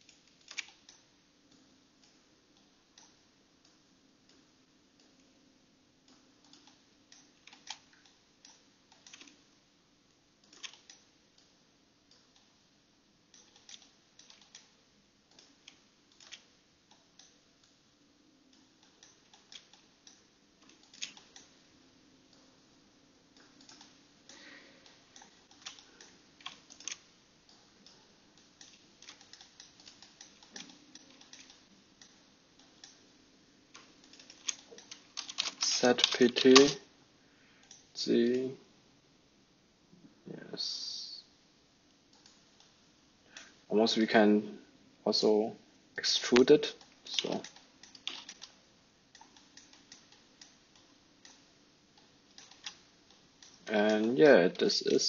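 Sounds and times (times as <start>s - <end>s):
keyboard and mouse clicks: 0.0s - 2.2s, 6.1s - 9.4s, 10.4s - 11.5s, 13.3s - 14.7s, 15.3s - 17.8s, 18.5s - 21.5s, 23.4s - 33.0s, 33.7s - 36.8s, 42.1s - 42.7s, 46.0s - 51.4s, 52.0s - 55.0s
low steady hum: 0.0s - 55.0s.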